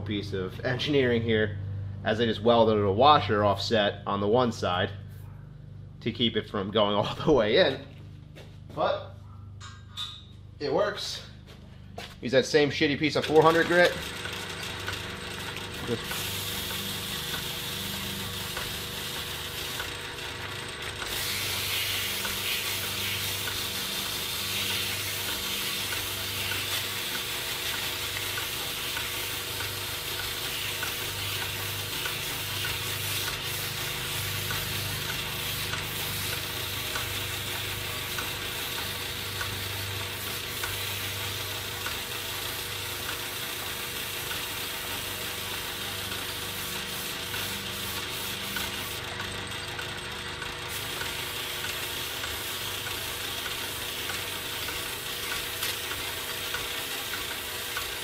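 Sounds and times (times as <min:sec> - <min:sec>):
lathe humming: 0:13.2 - 0:58.0
sandpaper hissing on metal: 0:15.9 - 0:19.8, 0:21.1 - 0:34.7, 0:39.6 - 0:41.5, 0:43.8 - 0:49.0.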